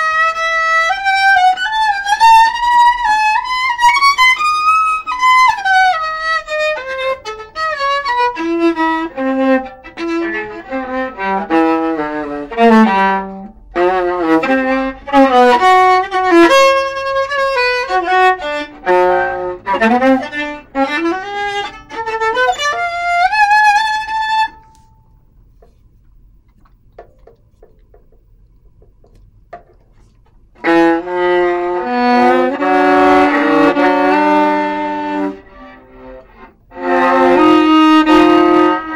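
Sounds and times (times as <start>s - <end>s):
bowed viola melody: 0.0s - 38.9s
faint taps: 24.5s - 30.5s.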